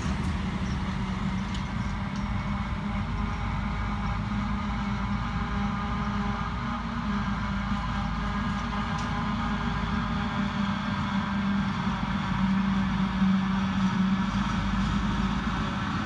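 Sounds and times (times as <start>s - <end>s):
forage harvester engine and chopping: 0.0s - 16.0s
tractor working: 0.0s - 16.0s.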